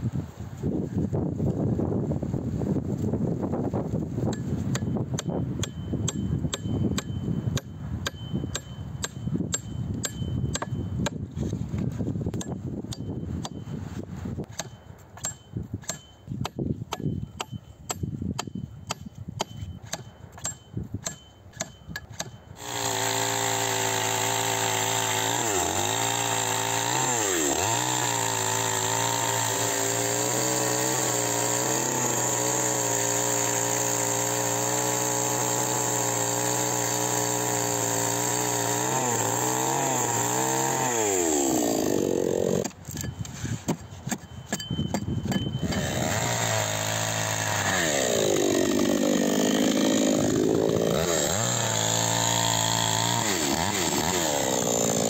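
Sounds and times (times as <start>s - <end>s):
hatchet chopping wooden log: 4.3s - 11.2s, 11.8s - 13.6s, 14.5s - 55.0s
chainsaw running at high revs: 22.6s - 42.8s, 45.6s - 55.0s.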